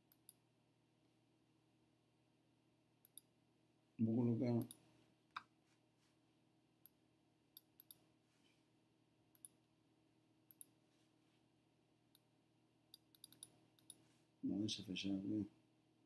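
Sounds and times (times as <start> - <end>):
computer mouse clicking: 0.0 - 0.4, 3.0 - 3.3, 7.6 - 8.0, 9.4 - 9.6, 10.5 - 10.7, 12.9 - 14.0.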